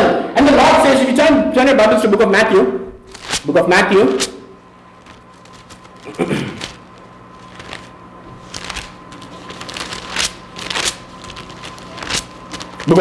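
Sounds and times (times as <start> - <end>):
pages being turned: 3.1 - 3.5, 4.2 - 13.0.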